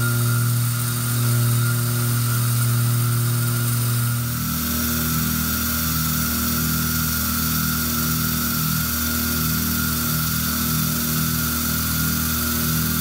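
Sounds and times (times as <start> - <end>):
machine tones switching on and off: 0.0 - 13.0
milling machine motor whine: 0.0 - 13.0.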